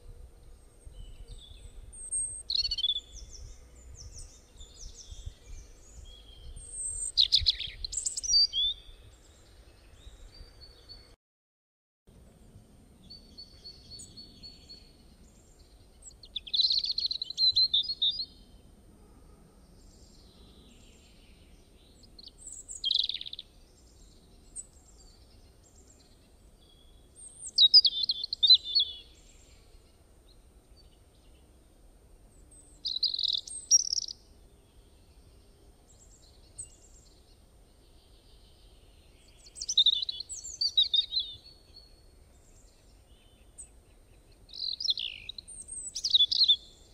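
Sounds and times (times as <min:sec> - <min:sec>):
faint low background hiss: 0:00.0 - 0:11.2, 0:12.1 - 0:46.9
songbird chirping: 0:00.0 - 0:11.2, 0:12.1 - 0:18.8, 0:19.5 - 0:46.9.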